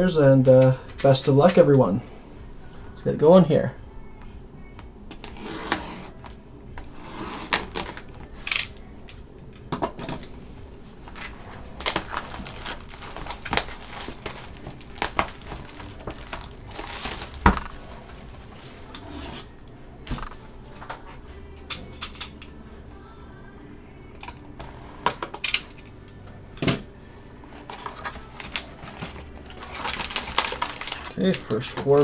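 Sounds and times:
plastic wrap crinkling: 11.1 - 19.0, 27.6 - 32.0
knife slitting shrink wrap: 29.5 - 32.0.

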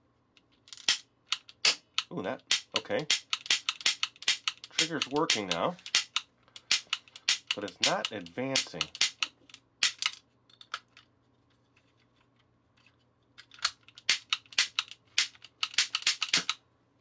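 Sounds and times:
toy cap gun clicking: 0.8 - 10.2, 13.6 - 16.6.

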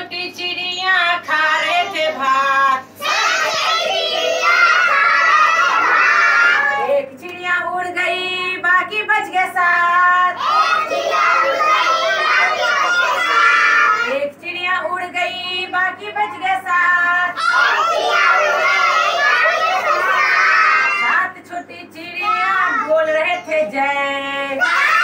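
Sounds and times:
woman singing: 0.0 - 3.0, 6.8 - 10.4, 14.1 - 17.4, 21.0 - 24.6
children singing in chorus: 1.3 - 6.9, 10.4 - 14.1, 17.4 - 21.2.

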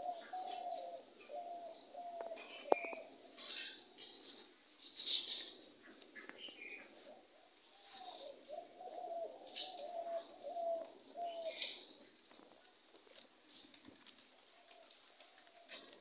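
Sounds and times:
small bird chirping: 0.0 - 4.4
dove cooing: 0.0 - 4.5, 5.3 - 13.2, 14.1 - 16.0.

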